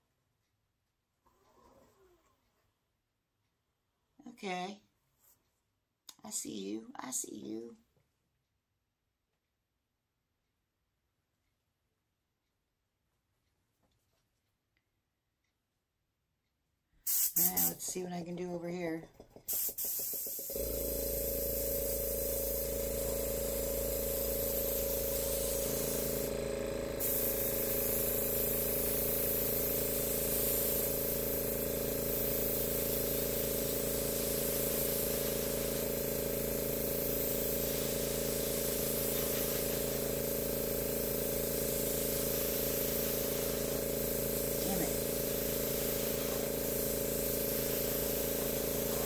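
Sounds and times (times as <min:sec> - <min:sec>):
airbrush hissing air: 0:17.0 - 0:17.9, 0:19.4 - 0:49.0
motor hum: 0:20.5 - 0:32.1.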